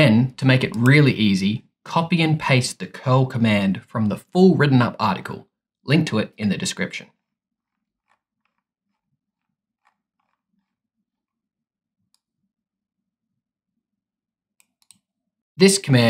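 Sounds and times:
soft clicks: 0:14.6 - 0:15.1.

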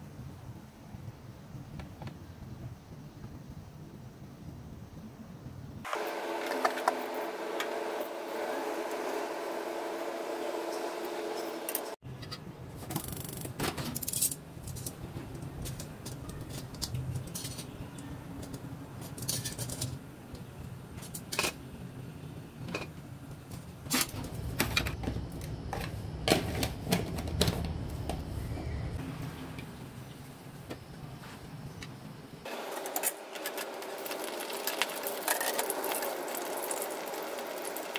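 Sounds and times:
steady low hum: 0:14.2 - 0:32.7
food sizzling in hot oil: 0:32.5 - 0:37.9.

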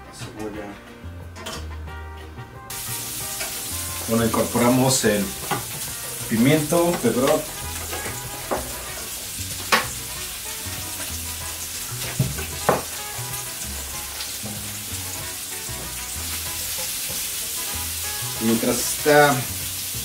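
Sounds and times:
vegetables sizzling in a frying pan: 0:02.7 - 0:20.0
utensil knocking on pan: 0:05.3 - 0:05.9, 0:06.8 - 0:09.0, 0:09.6 - 0:10.0, 0:12.0 - 0:13.3.

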